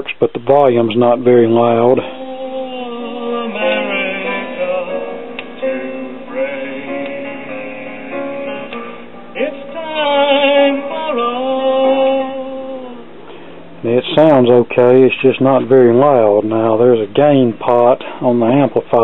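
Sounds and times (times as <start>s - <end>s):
record playing song with singing: 2.0s - 13.2s.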